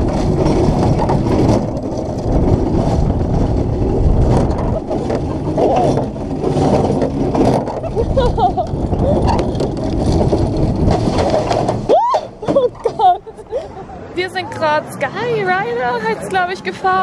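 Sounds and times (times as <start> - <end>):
wind on microphone: 0.0 - 14.2
wheels running along overhead track: 0.0 - 17.0
riders' voices: 13.0 - 17.0.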